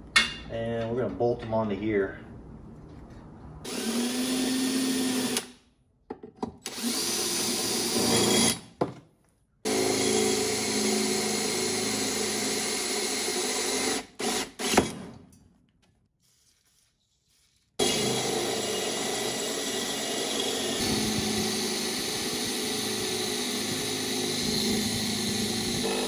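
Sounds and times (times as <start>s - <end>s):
drill boring into steel: 3.7s - 5.5s, 6.7s - 8.6s, 9.7s - 14.8s, 17.8s - 26.0s.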